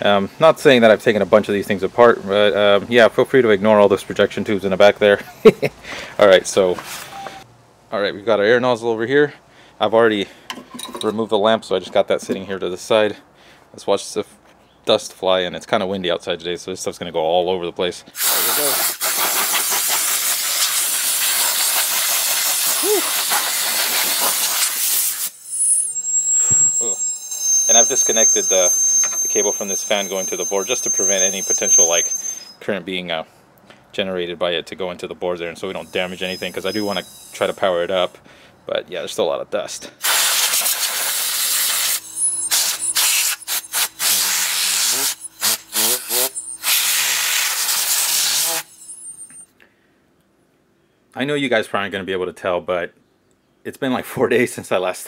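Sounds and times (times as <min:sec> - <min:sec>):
compressed air hissing: 0:18.1 - 0:32.6, 0:35.8 - 0:37.8, 0:39.9 - 0:49.2.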